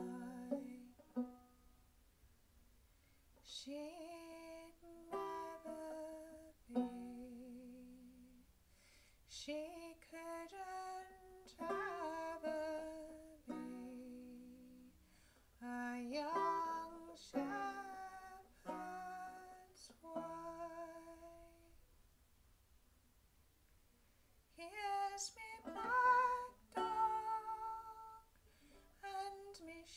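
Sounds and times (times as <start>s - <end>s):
woman singing folk song: 0.0s - 1.3s, 3.4s - 8.5s, 9.3s - 15.0s, 15.6s - 21.8s, 24.5s - 29.9s
fingerpicked banjo: 0.0s - 1.9s, 4.2s - 8.5s, 10.2s - 15.0s, 15.6s - 21.8s, 24.7s - 29.9s.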